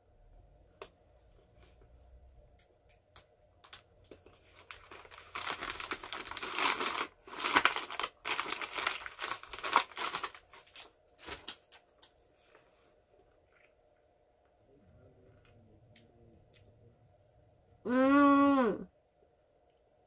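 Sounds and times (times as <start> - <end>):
plastic packaging crinkling: 3.1 - 12.2.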